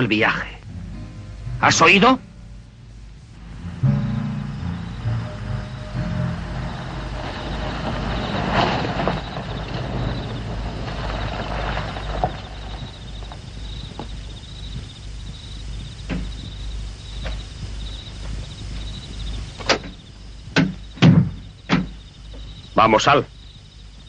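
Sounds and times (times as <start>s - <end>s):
crickets chirping: 0.0s - 24.0s
car engine running: 3.2s - 13.4s
tyre noise: 3.6s - 22.5s.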